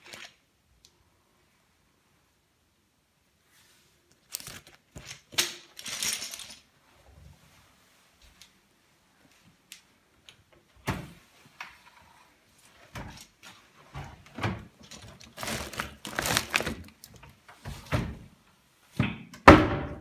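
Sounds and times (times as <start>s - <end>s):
paper bag rustling and crinkling: 4.2s - 6.5s, 14.8s - 17.2s.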